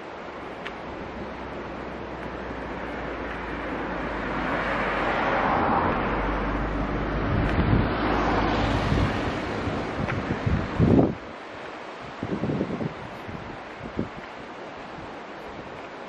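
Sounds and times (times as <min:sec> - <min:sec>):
wind buffeting microphone: 0:00.9 - 0:16.0
small truck passing by: 0:02.6 - 0:10.0.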